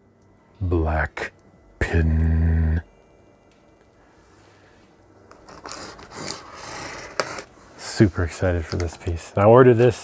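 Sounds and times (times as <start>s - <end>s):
cardboard and tape tearing: 5.4s - 7.5s.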